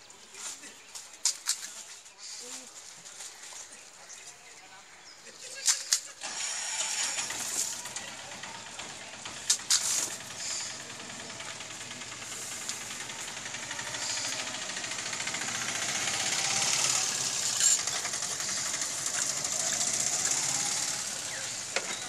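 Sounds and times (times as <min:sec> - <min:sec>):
small engine rattling: 0:05.4 - 0:22.0.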